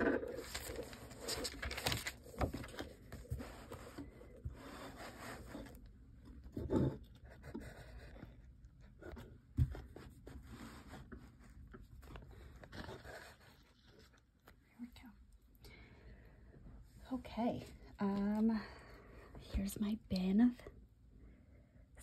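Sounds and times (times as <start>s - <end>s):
notebook pages turning: 0.0s - 4.1s.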